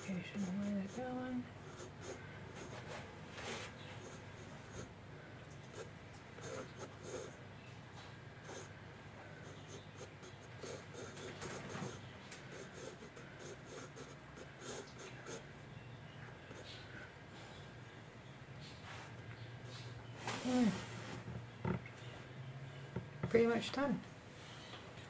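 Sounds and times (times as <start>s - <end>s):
pencil scratching on paper: 0.0s - 4.9s, 5.7s - 7.4s, 8.4s - 8.7s, 9.4s - 15.4s.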